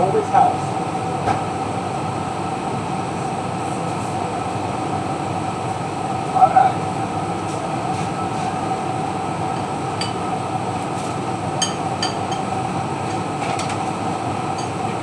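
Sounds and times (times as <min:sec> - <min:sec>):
steady machine drone: 0:00.0 - 0:15.0
kitchenware clinking: 0:11.6 - 0:12.5.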